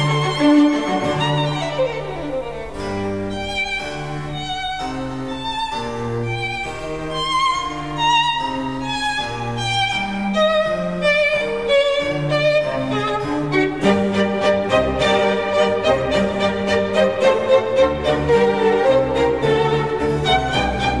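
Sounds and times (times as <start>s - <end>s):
violin melody: 0.0s - 21.0s
low bass line: 19.4s - 21.0s.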